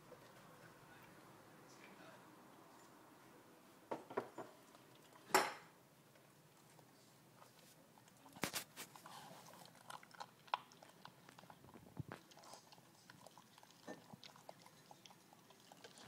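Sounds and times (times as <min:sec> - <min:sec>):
puppy chewing and crunching food: 0:04.3 - 0:05.4, 0:06.0 - 0:16.0.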